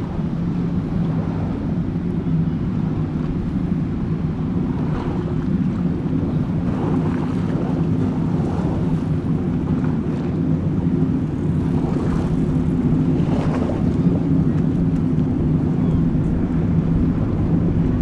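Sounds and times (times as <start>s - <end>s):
powerboat engines at high speed: 0.0s - 18.0s.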